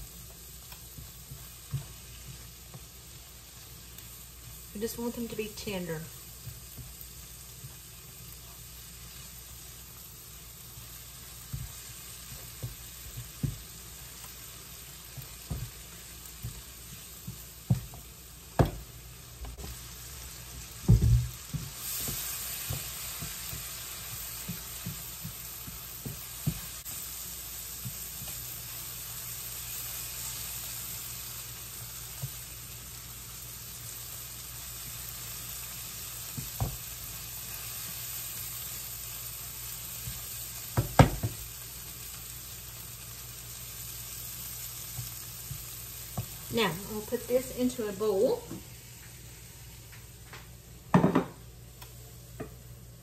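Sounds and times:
vegetables sizzling in a frying pan: 0.0 - 53.0
pan thump: 50.9 - 51.4.

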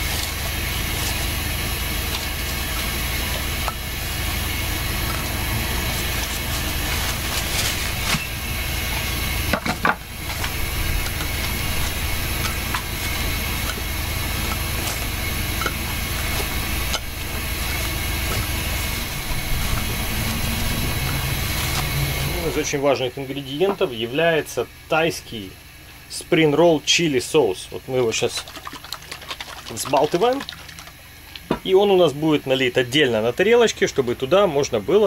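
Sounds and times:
low rumble: 15.6 - 22.6.

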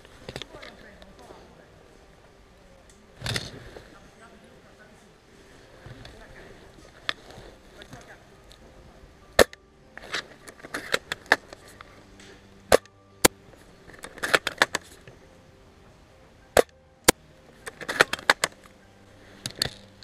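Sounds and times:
clicks and rattles: 17.6 - 18.7.

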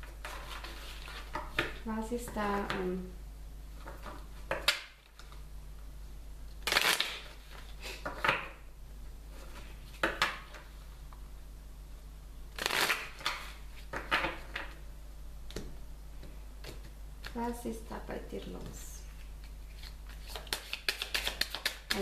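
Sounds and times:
cards being shuffled: 12.6 - 14.8, 19.1 - 22.0.

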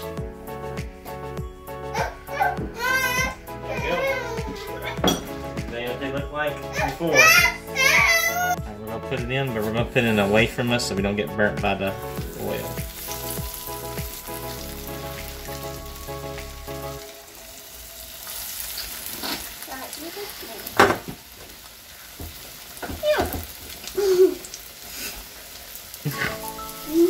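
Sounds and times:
food frying in hot oil: 12.0 - 27.0.

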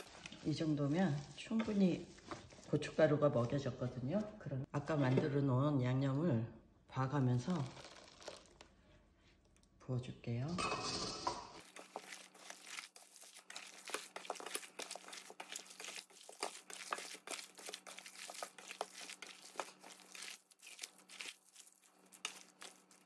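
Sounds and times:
wet crinkles and squishes of mixing: 0.0 - 4.5, 7.0 - 10.0, 11.6 - 23.0.

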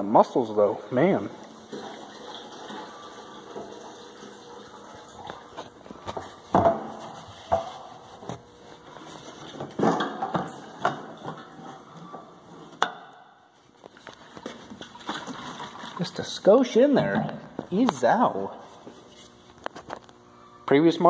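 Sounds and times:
gas can clanking and knocking: 6.5 - 7.8, 9.6 - 11.6.

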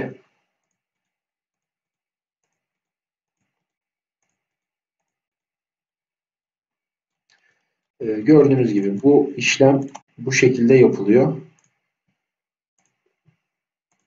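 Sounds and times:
faint computer mouse clicks: 11.4 - 11.8.

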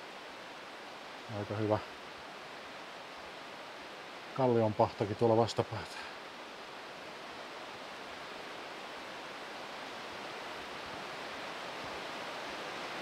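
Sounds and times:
white water rushing: 0.0 - 13.0.

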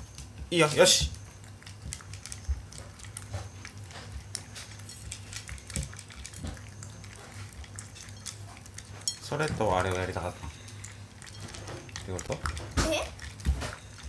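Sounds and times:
dog chewing dry kibble: 0.0 - 14.0.

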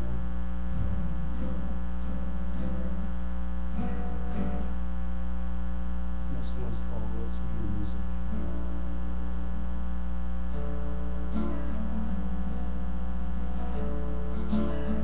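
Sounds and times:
faint musical notes: 0.0 - 4.9, 10.4 - 15.0
electrical mains hum: 0.0 - 15.0.

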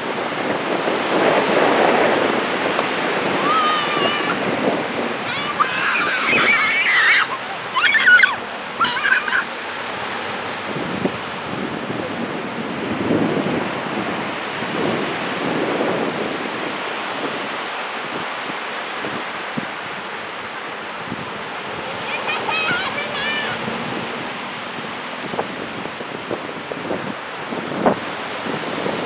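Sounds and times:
waves washing up a beach: 0.0 - 29.0
child crying out: 3.4 - 4.5, 5.2 - 9.5, 22.0 - 23.6.

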